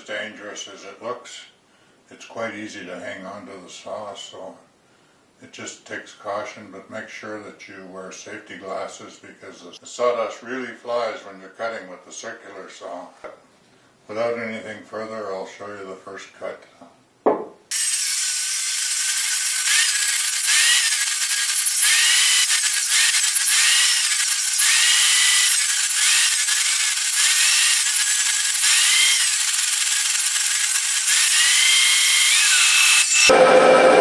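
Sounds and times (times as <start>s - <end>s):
circular saw cutting wood: 17.7s - 34.0s.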